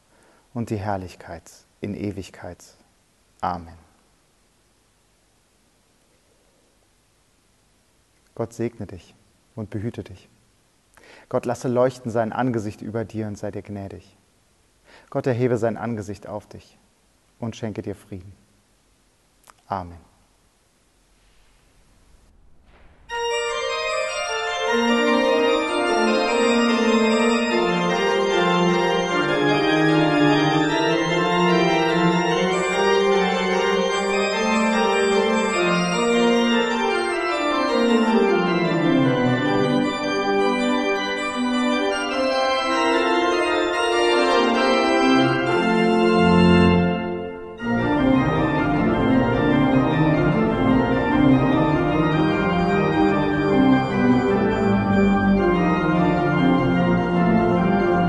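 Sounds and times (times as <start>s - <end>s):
church organ playing chords: 23.1s - 58.0s.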